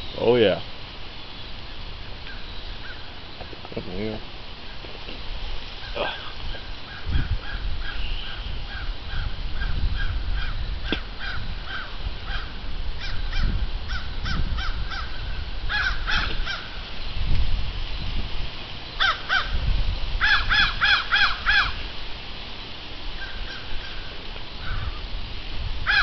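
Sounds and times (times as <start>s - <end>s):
crows cawing: 2.2s - 3.5s, 5.8s - 16.8s, 19.0s - 19.6s, 20.2s - 21.9s, 23.2s - 25.1s.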